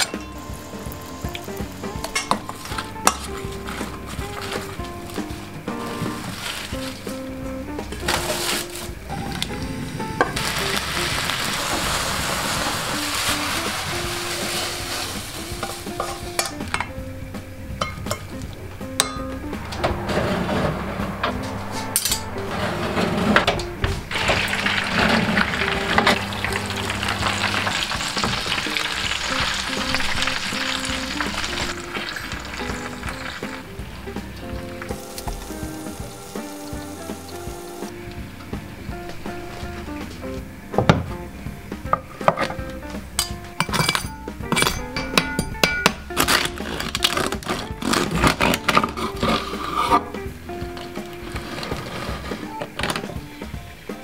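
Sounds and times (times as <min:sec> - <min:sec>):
meat sizzling in hot fat: 0:00.0 - 0:16.8, 0:24.1 - 0:38.0
background music with held notes: 0:00.0 - 0:54.0.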